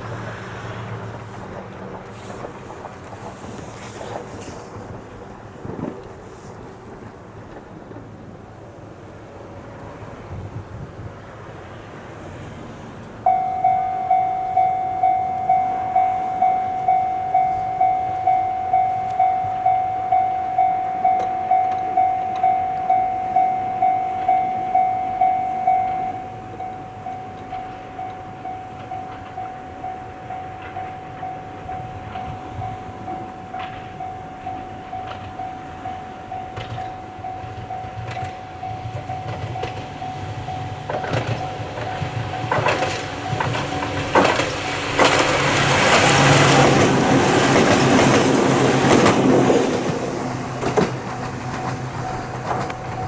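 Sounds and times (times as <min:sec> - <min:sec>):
approaching train rumble: 0:00.0 - 0:53.0
level crossing warning bell: 0:13.2 - 0:53.0.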